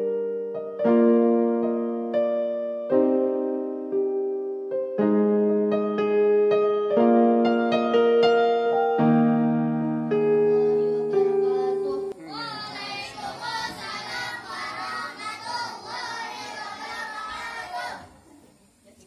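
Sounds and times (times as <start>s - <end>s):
electronic keyboard chords: 0.0s - 12.2s
boy chanting recitation: 10.4s - 19.0s.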